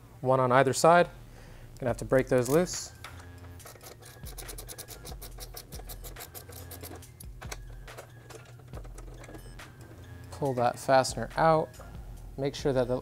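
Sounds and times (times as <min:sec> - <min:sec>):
hand ratchet clicking: 0:02.4 - 0:10.1.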